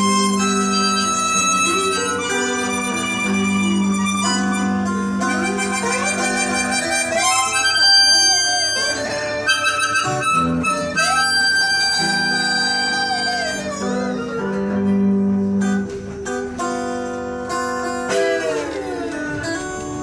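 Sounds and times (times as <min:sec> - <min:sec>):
harmonica solo: 0:00.0 - 0:15.8
acoustic guitars: 0:00.0 - 0:20.0.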